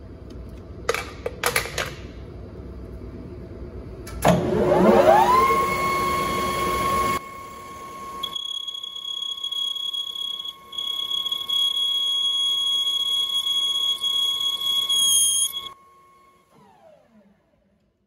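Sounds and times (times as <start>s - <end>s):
lathe running whine: 4.5s - 17.0s
cutting tool squealing: 8.2s - 15.8s
lathe spindle winding down: 9.3s - 15.8s.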